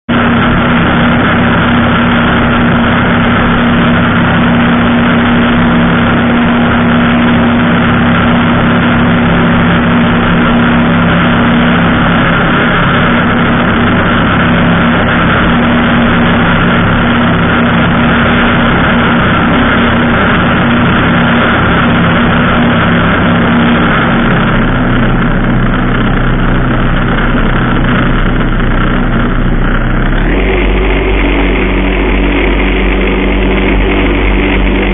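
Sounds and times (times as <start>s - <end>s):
aircraft engine and propeller droning: 0.1s - 34.9s.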